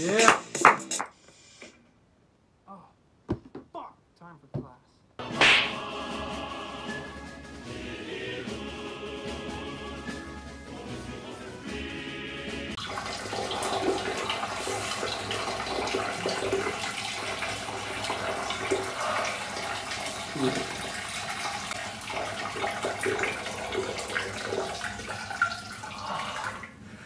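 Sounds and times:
person gargling: 20.3 - 20.9, 25.8 - 26.7.

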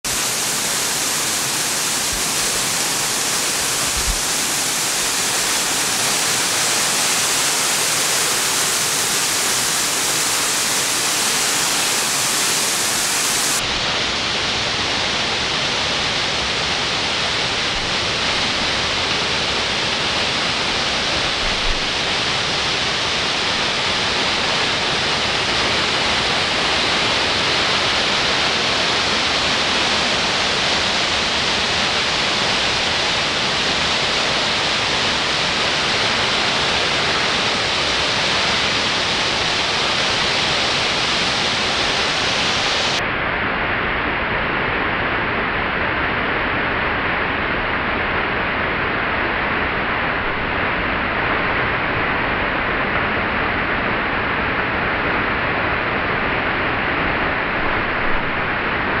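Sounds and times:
fountain water splashing: 0.0 - 13.6.

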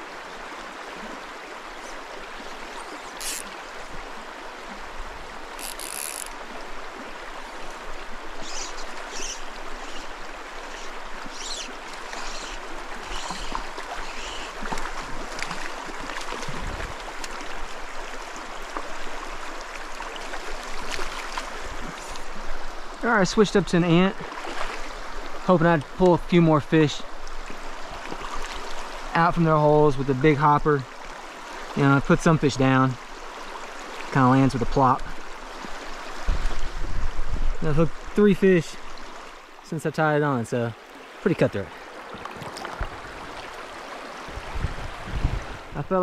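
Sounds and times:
stream running over stones: 0.0 - 46.0
sharp ticks and splashes: 0.2 - 36.8, 37.8 - 44.2.

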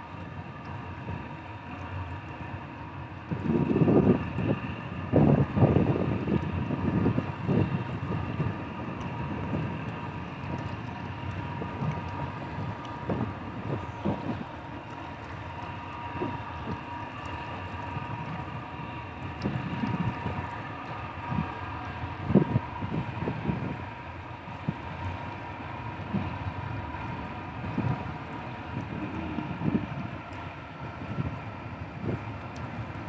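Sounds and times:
distant ship engine drone: 0.0 - 33.0
wind buffeting microphone: 0.0 - 33.0.

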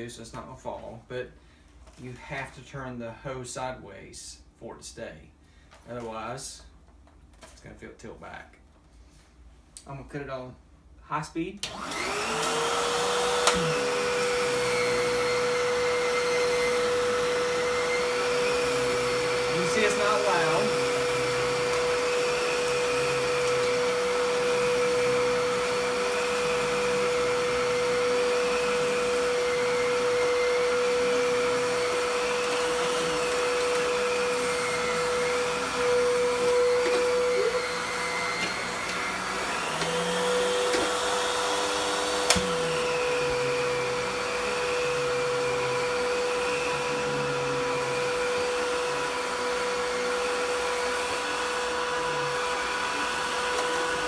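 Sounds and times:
vacuum cleaner motor whine: 11.6 - 54.0.

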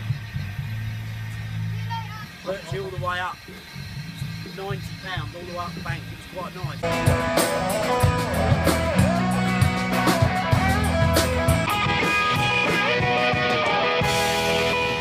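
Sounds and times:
bass guitar: 0.0 - 4.5, 5.9 - 15.0
drum kit beat: 4.0 - 15.0
electric guitar lead: 6.8 - 15.0.

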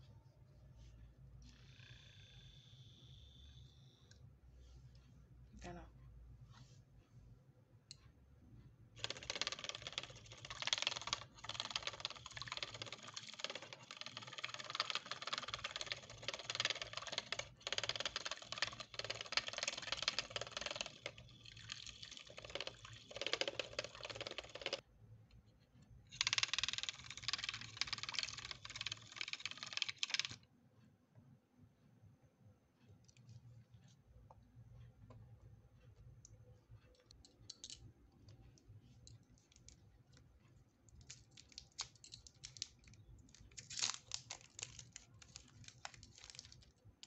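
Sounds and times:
whisk rattling against metal bowl: 9.0 - 24.8.

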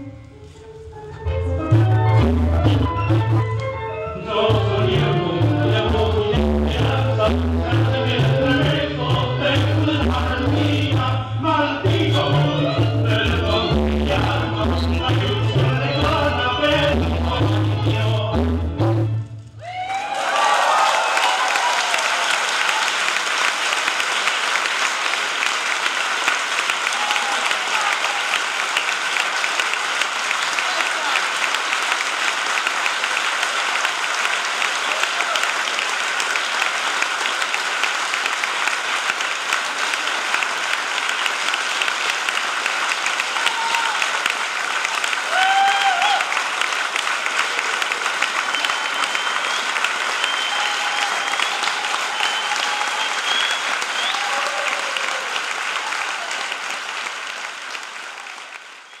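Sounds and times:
audience applauding: 19.6 - 59.0
crowd cheering: 19.6 - 59.0.

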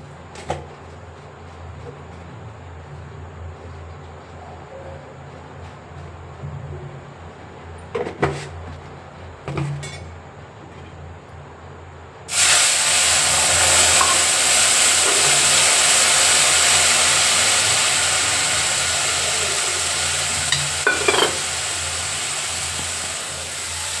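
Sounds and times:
liquid sizzling in a hot pan: 12.3 - 24.0.

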